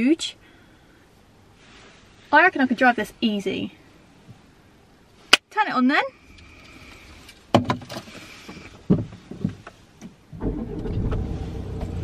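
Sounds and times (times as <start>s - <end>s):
car engine starting and running: 6.2s - 12.0s.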